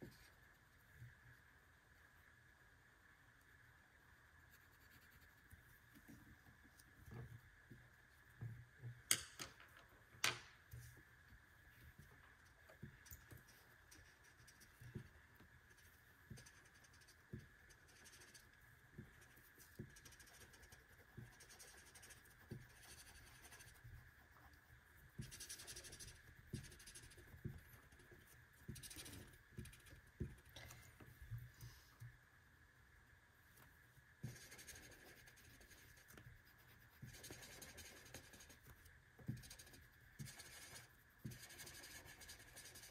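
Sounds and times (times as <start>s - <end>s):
faint high-pitched whine: 0.0s - 42.9s
pencil scratching on paper: 4.5s - 5.4s, 13.2s - 30.4s, 34.2s - 42.9s.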